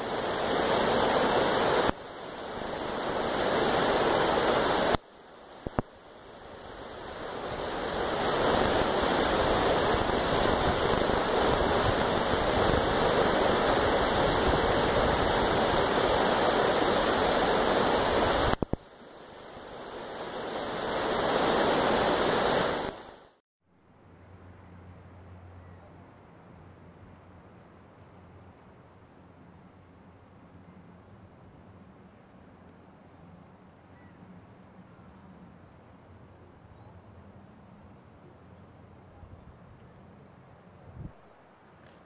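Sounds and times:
creek running over rocks: 0:00.0 - 0:23.2.

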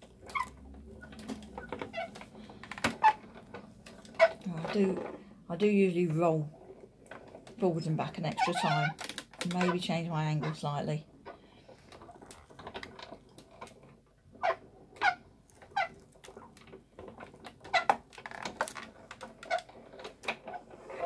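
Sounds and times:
die-cutting machine creaking: 0:00.0 - 0:05.2.

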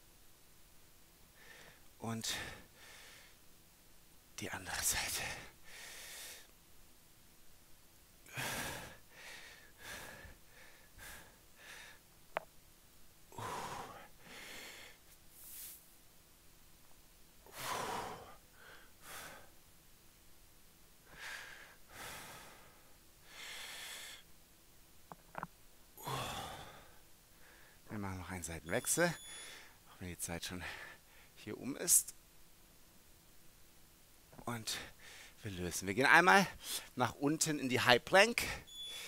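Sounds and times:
man breathing: 0:01.3 - 0:03.4, 0:05.1 - 0:06.5, 0:08.2 - 0:12.1, 0:13.3 - 0:15.8, 0:17.4 - 0:19.6, 0:21.0 - 0:24.3, 0:26.0 - 0:27.9, 0:29.0 - 0:29.9, 0:30.6 - 0:31.4, 0:34.7 - 0:35.4, 0:36.6 - 0:37.0.

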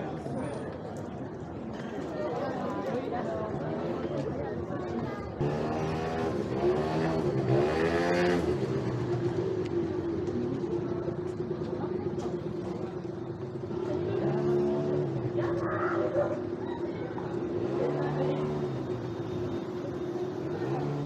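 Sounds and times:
vehicle engine revving: 0:05.4 - 0:09.4.

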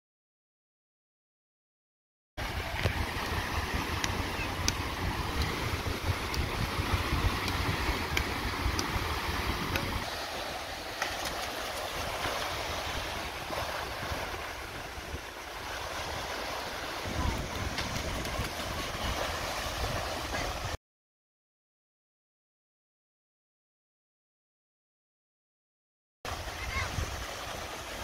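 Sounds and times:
wind buffeting microphone: 0:02.4 - 0:10.3, 0:11.4 - 0:20.8, 0:26.3 - 0:28.0
small waves breaking on sand: 0:02.4 - 0:20.8, 0:26.3 - 0:28.0.

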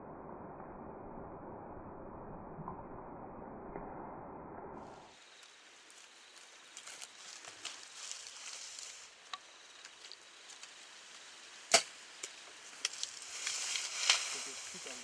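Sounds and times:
bow string crack: 0:11.7 - 0:15.0.

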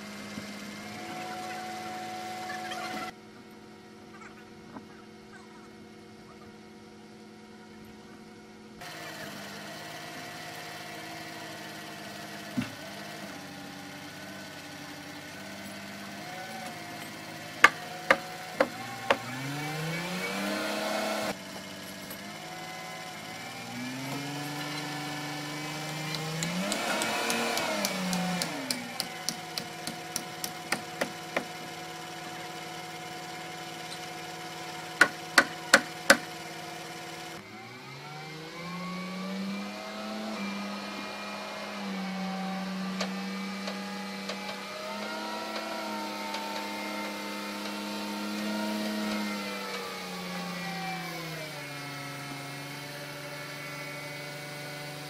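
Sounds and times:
machine engine revving: 0:08.8 - 0:55.0
hammer striking timber: 0:17.6 - 0:19.3, 0:25.8 - 0:31.7, 0:35.0 - 0:36.3.

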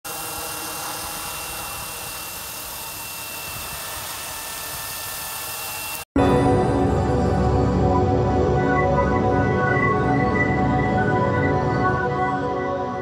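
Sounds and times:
rc helicopter hiss and whine: 0:00.0 - 0:06.1.

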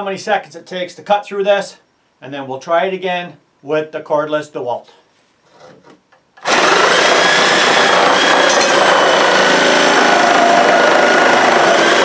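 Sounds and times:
reciprocating saw cutting wood: 0:06.4 - 0:12.0.

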